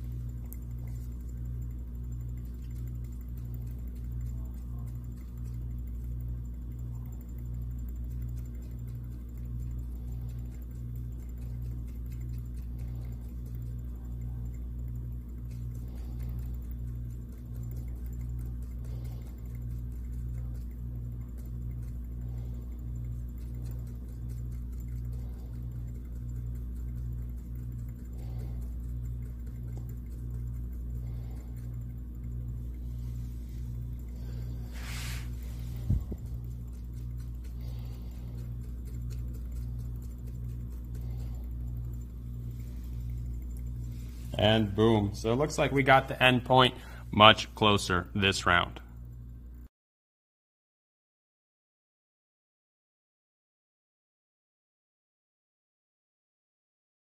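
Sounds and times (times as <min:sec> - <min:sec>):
magnetic stirrer pulsing hum: 0:00.0 - 0:49.7.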